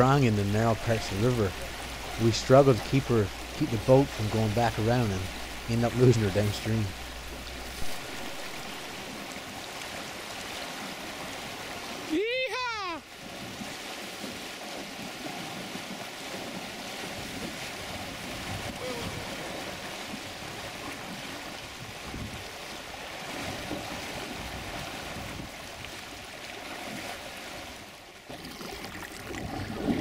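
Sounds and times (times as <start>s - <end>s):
river current rushing around boat: 0.0s - 30.0s.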